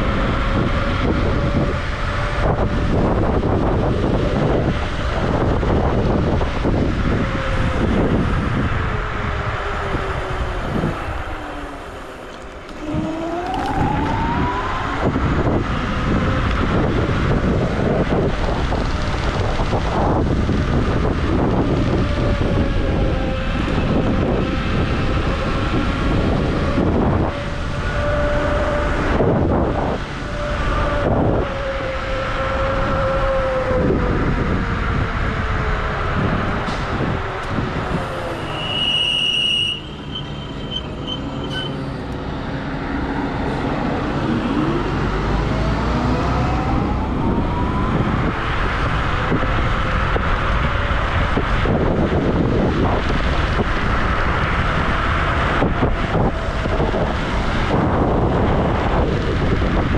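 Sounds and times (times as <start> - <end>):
wind rush on microphone: 0.0 - 59.9
electric scooter motor whine: 7.2 - 17.1.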